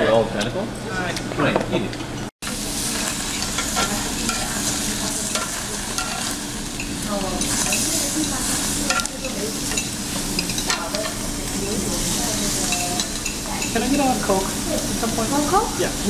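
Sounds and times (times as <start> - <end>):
meat sizzling on a grill: 2.4 - 16.0
metal tongs clicking: 5.3 - 7.9, 8.9 - 11.2.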